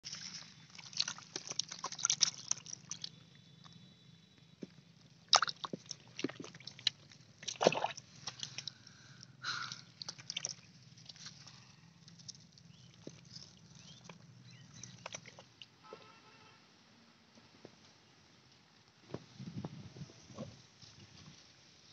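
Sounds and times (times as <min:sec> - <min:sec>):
wet slaps and splashes: 0:00.2 - 0:03.1, 0:05.3 - 0:08.7, 0:10.0 - 0:11.2.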